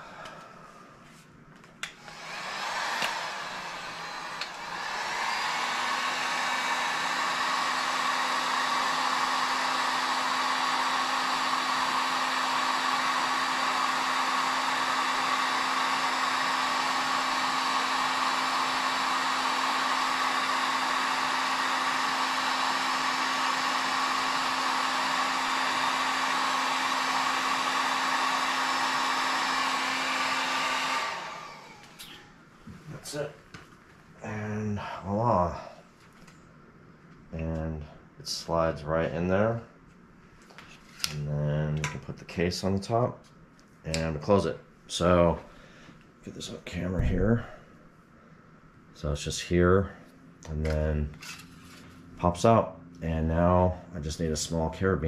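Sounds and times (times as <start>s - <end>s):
heat gun blowing air: 1.8s - 32.3s.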